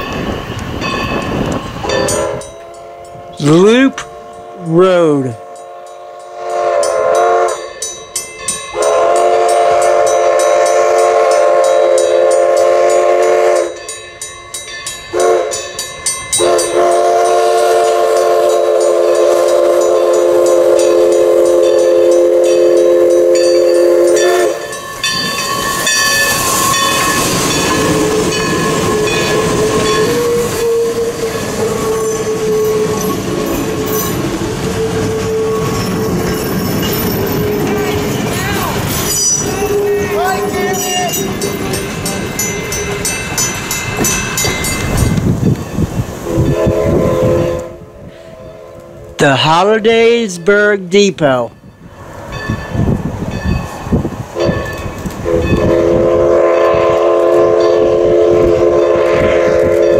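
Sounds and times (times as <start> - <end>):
train rumbling over rails: 0.0 - 59.9
steam whistle blasts: 1.8 - 4.8, 5.4 - 7.9, 8.7 - 13.8, 15.1 - 15.8, 16.4 - 36.1, 39.4 - 41.2, 46.2 - 49.0, 55.2 - 59.9.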